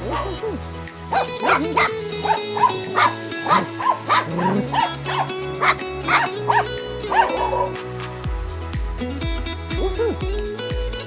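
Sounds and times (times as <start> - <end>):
puppy barking in high yaps: 0.0 - 7.8, 9.8 - 10.2
background music with steady beat: 0.0 - 11.0.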